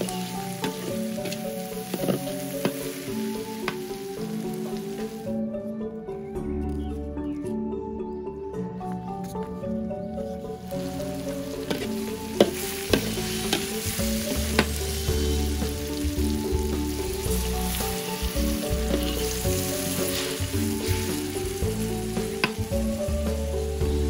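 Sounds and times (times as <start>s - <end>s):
food sizzling in a wok: 0.0s - 5.3s, 10.6s - 24.0s
water poured into hot wok: 10.6s - 24.0s
metal spatula scraping wok: 17.7s - 21.4s.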